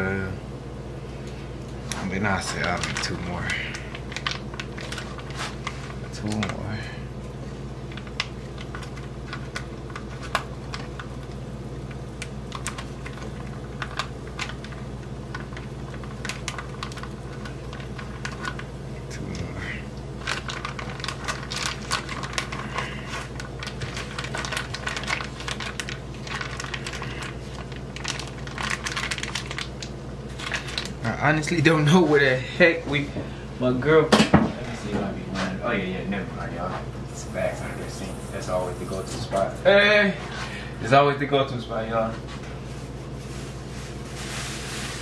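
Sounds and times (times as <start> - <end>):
steady low hum: 0.0 - 45.0
bacon frying in a pan: 7.9 - 19.2, 20.0 - 31.4, 37.2 - 39.4.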